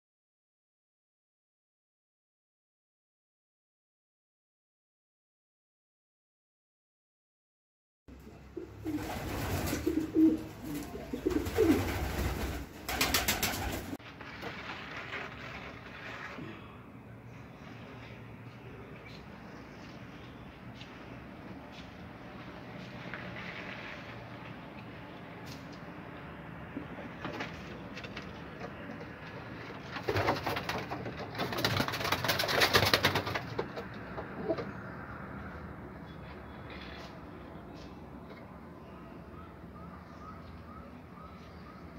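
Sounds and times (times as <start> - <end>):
pigeons cooing: 8.2 - 14.0, 34.1 - 34.8
wings fluttering rapidly: 8.8 - 16.4, 29.8 - 33.9
rapid clatter: 27.2 - 34.2.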